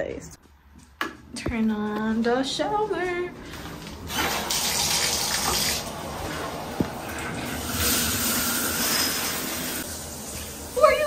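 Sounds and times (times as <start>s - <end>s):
shower water spraying on tiles: 4.2s - 5.9s.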